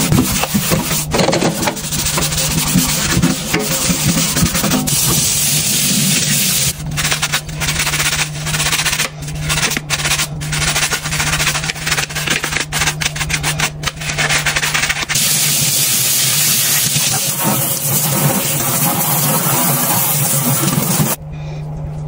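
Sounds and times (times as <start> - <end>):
tap water running into sink: 0.0 - 6.8, 15.2 - 21.2
dish brush scrubbing a steel sink: 0.0 - 21.2.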